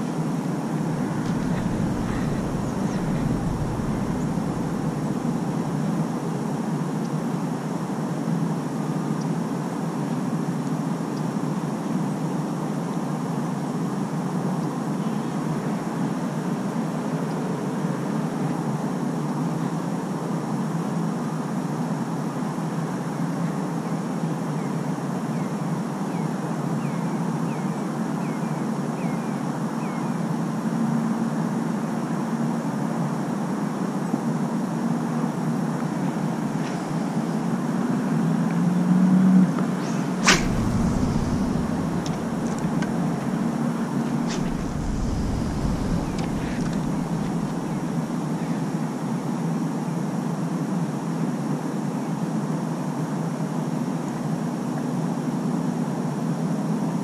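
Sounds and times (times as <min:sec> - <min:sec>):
low hum: 0:00.8 - 0:06.5, 0:39.6 - 0:48.7
low rumbling: 0:00.8 - 0:06.5, 0:39.6 - 0:48.7
hiss: 0:01.0 - 0:06.0, 0:39.7 - 0:48.5
sharp click: 0:01.2 - 0:05.8, 0:39.8 - 0:48.2.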